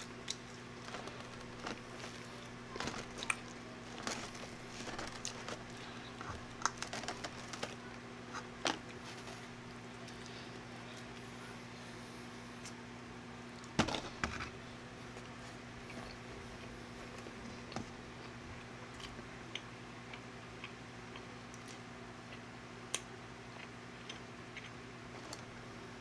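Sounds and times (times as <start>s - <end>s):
person chewing food: 0.0s - 11.3s, 15.1s - 25.6s
steady low hum: 0.0s - 26.0s.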